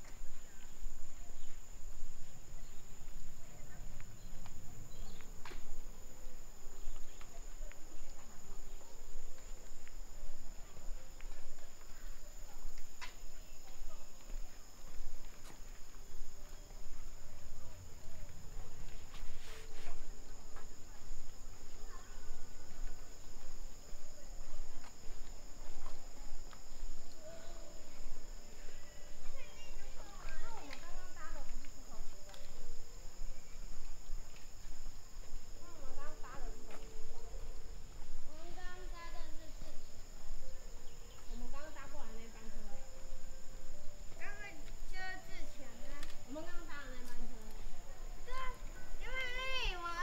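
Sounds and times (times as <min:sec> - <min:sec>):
insects chirring: 0:00.0 - 0:50.0
low uneven rumble: 0:00.0 - 0:50.0
light ticks: 0:45.9 - 0:46.2.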